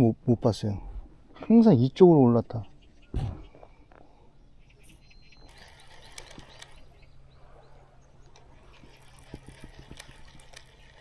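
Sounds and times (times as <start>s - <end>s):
fishing reel whirring: 5.3s - 7.1s, 8.3s - 11.0s.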